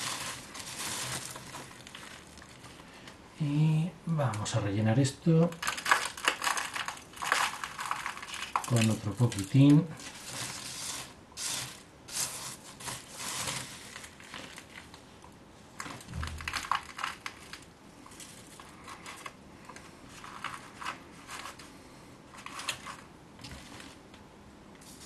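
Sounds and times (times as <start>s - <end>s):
soil rustling: 0.0s - 3.1s
plastic bag crinkling: 0.0s - 3.2s, 5.3s - 15.0s, 15.8s - 21.7s, 22.3s - 24.1s.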